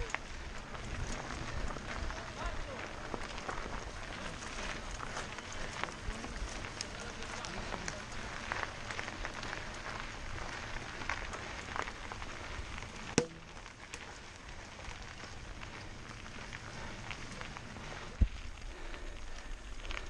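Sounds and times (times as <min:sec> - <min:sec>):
bike rattling and clicking: 0:00.0 - 0:20.0
bike tyres crunching on dirt: 0:00.0 - 0:20.0
sharp knock: 0:13.2 - 0:13.4.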